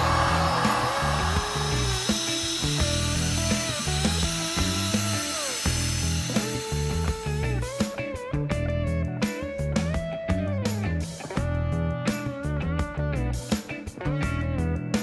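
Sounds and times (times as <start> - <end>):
heat gun blower hiss: 0.0 - 7.8
music with gliding melody: 0.0 - 15.0.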